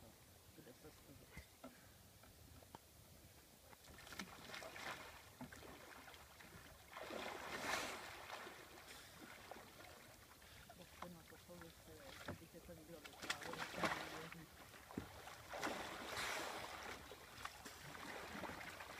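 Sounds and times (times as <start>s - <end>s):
water splashing around a kayak: 3.6s - 18.9s
rush of water: 3.8s - 18.9s.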